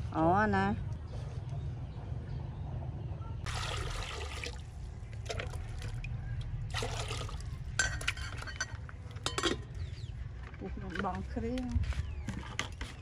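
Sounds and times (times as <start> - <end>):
water pouring into metal pot: 3.4 - 6.1, 6.7 - 8.5.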